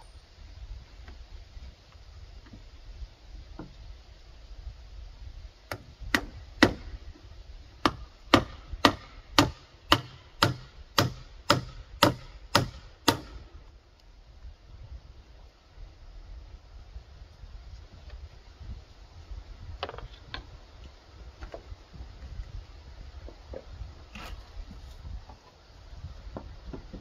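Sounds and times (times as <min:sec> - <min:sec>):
hammer striking nail into wood: 0:05.7 - 0:06.9, 0:07.8 - 0:13.4.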